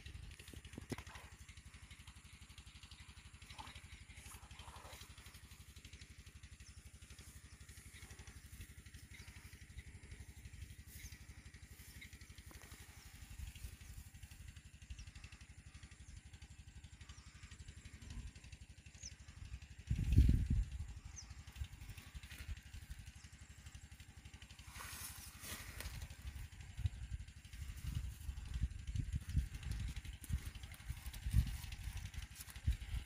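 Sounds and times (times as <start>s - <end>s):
faint low rumble: 0.0s - 33.0s.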